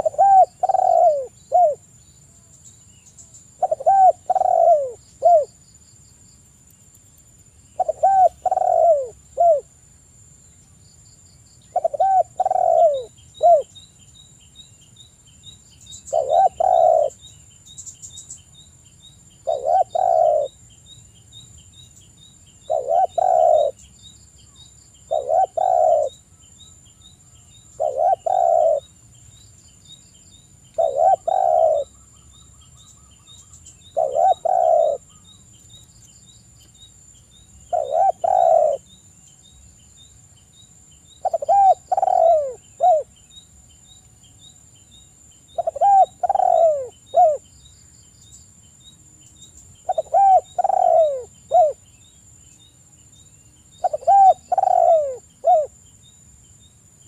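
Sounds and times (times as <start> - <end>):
dove cooing: 0.0 - 1.8, 3.6 - 5.5, 7.8 - 9.7, 11.7 - 13.8, 16.1 - 17.2, 19.4 - 20.6, 22.6 - 23.8, 25.1 - 26.2, 27.8 - 28.9, 30.8 - 32.0, 33.9 - 35.2, 37.7 - 38.8, 41.2 - 43.1, 45.6 - 47.4, 49.9 - 51.8, 53.8 - 55.7.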